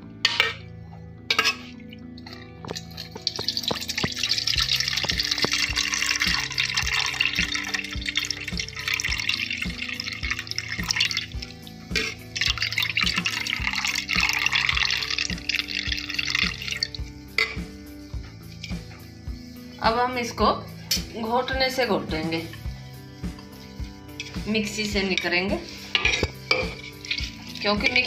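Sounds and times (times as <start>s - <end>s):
background music with steady beat: 0.0s - 28.0s
water pouring into steel bowl: 1.3s - 17.6s, 25.7s - 28.0s.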